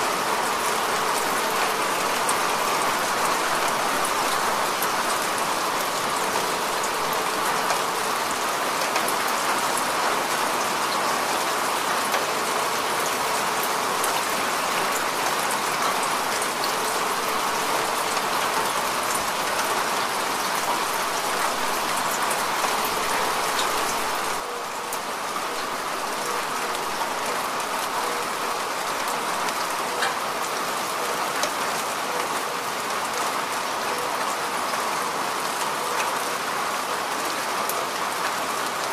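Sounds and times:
heavy rain falling: 0:00.0 - 0:38.9.

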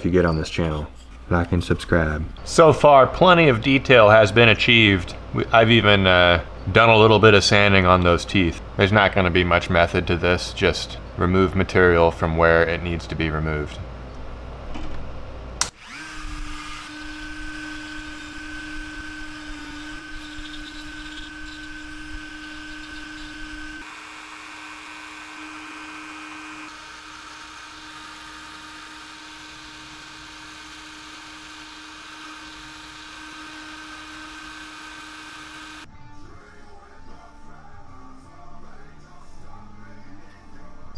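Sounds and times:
rotary tool grinding wood: 0:15.7 - 0:35.8.

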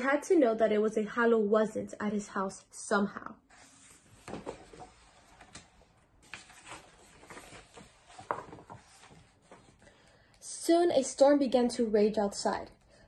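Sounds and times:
book being handled: 0:03.5 - 0:09.8
page turning: 0:03.5 - 0:09.8.

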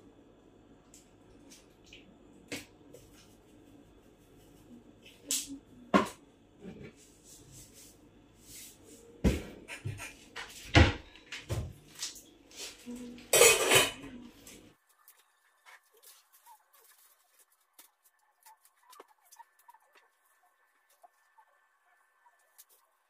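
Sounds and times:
rustling scrape: 0:14.4 - 0:21.1.

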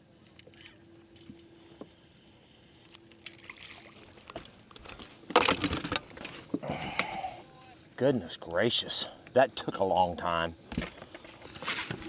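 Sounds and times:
faint steady hum: 0:00.0 - 0:12.0
fish splashing and clattering: 0:03.2 - 0:06.0.

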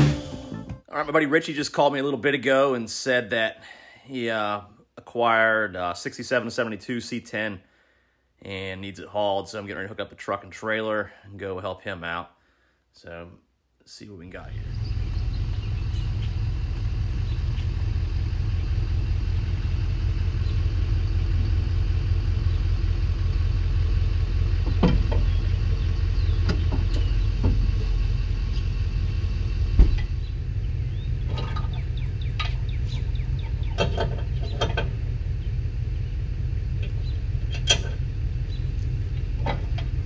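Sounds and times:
pickup truck engine idling: 0:14.4 - 0:40.0
chains clanking and rattling: 0:31.3 - 0:32.6.

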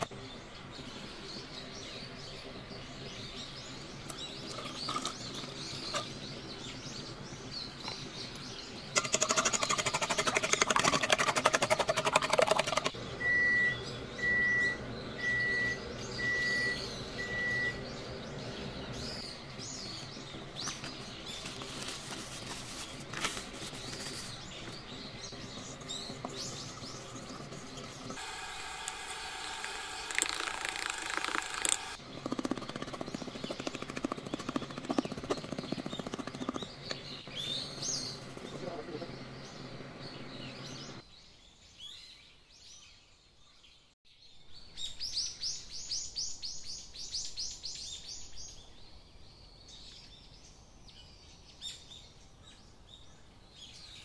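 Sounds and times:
short electronic beeps: 0:13.2 - 0:17.8.

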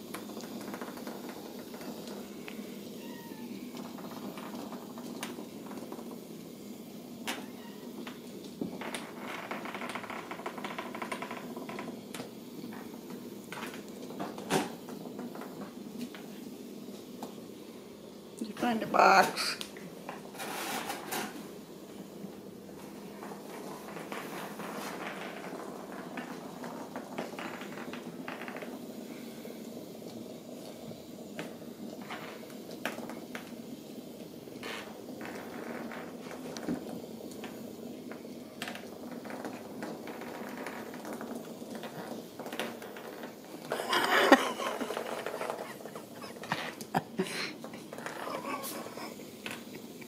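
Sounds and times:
kittens playing with plastic toys: 0:00.1 - 0:06.4, 0:22.1 - 0:30.8, 0:34.6 - 0:50.0.

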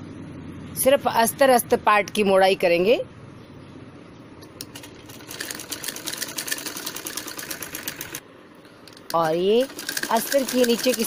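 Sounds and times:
sewing machine clicking: 0:04.6 - 0:08.2, 0:08.9 - 0:11.0.

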